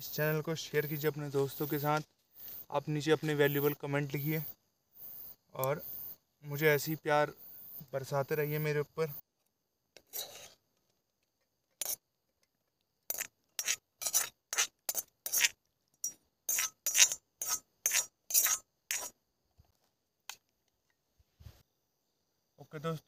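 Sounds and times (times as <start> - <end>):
short rasping scrapes: 10.0 - 10.6, 13.1 - 19.2.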